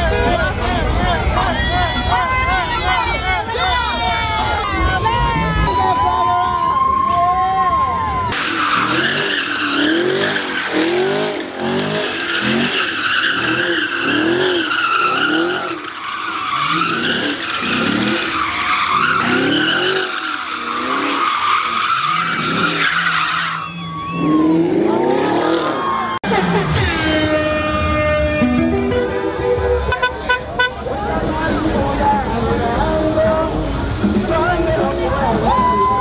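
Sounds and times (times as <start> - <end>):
tyres squealing: 8.3 - 28.1
car engine revving: 8.4 - 36.0.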